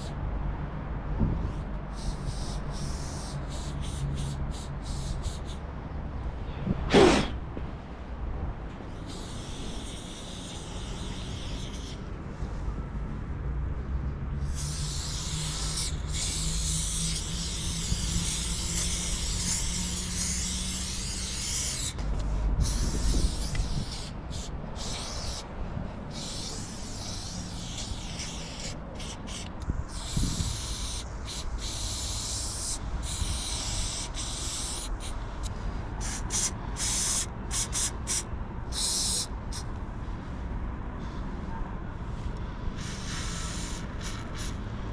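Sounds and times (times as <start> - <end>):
spray paint can hissing: 1.5 - 5.6, 8.9 - 12.1, 14.4 - 39.7, 42.8 - 44.6.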